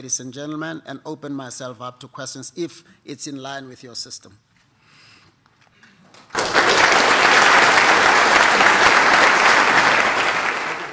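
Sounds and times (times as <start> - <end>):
audience applause: 6.3 - 10.9.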